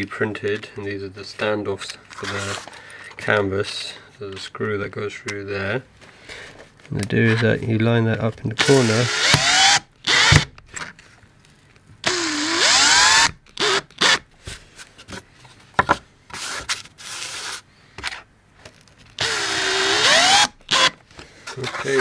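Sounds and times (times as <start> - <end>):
power drill driving screws: 8.6 - 10.5, 12.0 - 14.2, 19.2 - 21.0.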